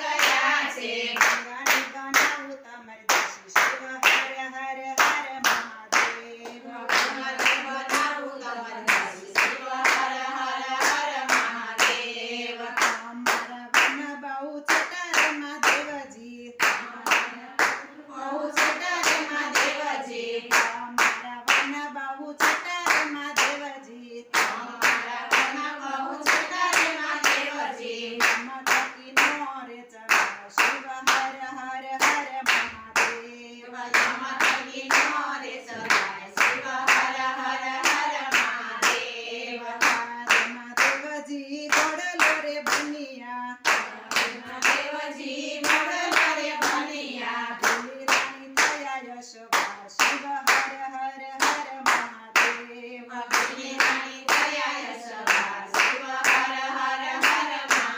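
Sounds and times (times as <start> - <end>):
hands clapping on a beat: 0.0 - 57.9
women singing together: 0.0 - 57.9.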